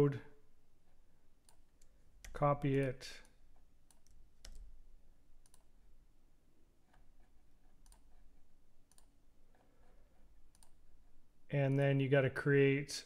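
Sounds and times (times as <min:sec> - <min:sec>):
computer mouse and keyboard clicks: 0:01.4 - 0:04.8, 0:06.8 - 0:10.8.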